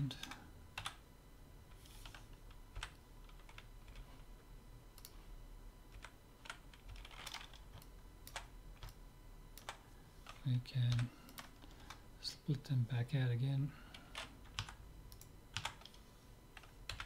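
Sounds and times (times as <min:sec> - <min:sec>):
computer keyboard clicks: 0:06.0 - 0:09.0, 0:14.1 - 0:16.0.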